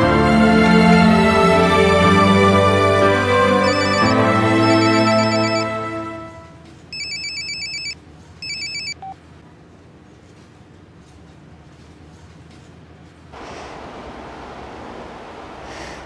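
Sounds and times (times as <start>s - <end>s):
background music: 0.0s - 6.6s
low beep: 3.6s - 5.7s
warbling electronic ringtone: 3.6s - 5.8s, 7.0s - 9.1s.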